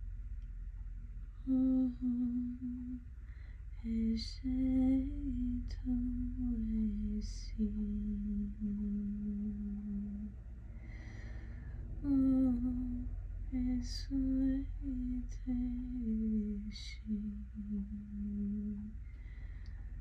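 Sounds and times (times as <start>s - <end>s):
woman humming: 1.4s - 3.0s, 12.0s - 19.0s.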